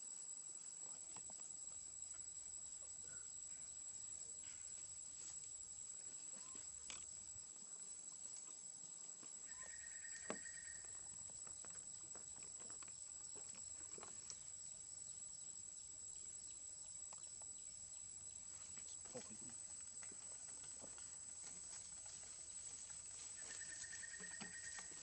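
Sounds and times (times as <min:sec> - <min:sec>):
high insect drone: 0:00.0 - 0:25.0
monkeys tapping and rustling on branch: 0:18.6 - 0:25.0.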